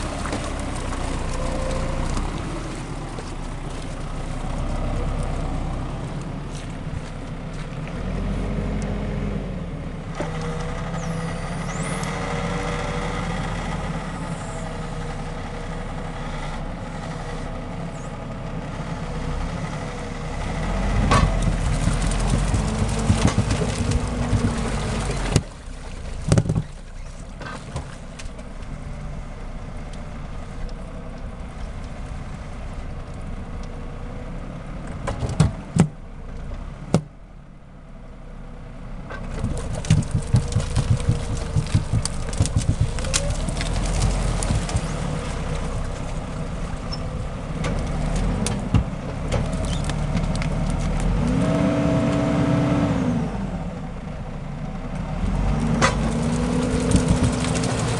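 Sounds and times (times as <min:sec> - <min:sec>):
tractor diesel engine under load: 0:00.0 - 0:57.9
sharp knocks: 0:39.4 - 0:43.4.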